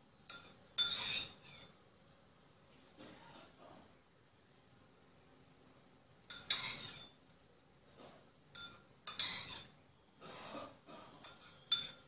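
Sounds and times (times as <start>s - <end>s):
spoon clinking against bowl: 0.2s - 1.8s, 6.3s - 7.2s, 8.5s - 9.8s, 11.1s - 12.0s.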